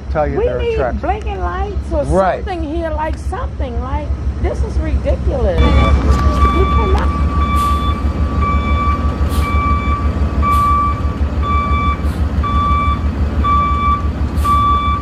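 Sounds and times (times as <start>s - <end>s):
truck engine rumbling: 0.0s - 15.0s
truck back-up alarm beeping: 5.6s - 15.0s.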